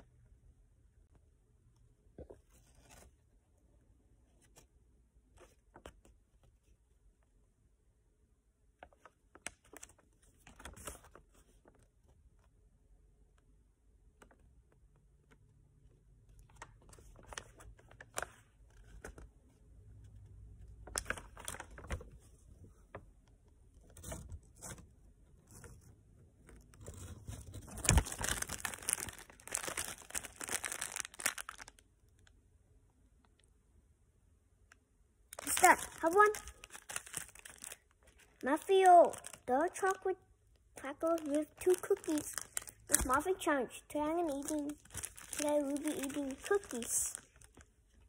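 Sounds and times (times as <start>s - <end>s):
paper rustling and crinkling: 2.3s - 3.2s, 8.8s - 11.9s, 16.4s - 19.3s, 20.8s - 23.1s, 23.8s - 31.8s, 35.3s - 40.0s, 41.0s - 43.4s, 44.2s - 47.7s.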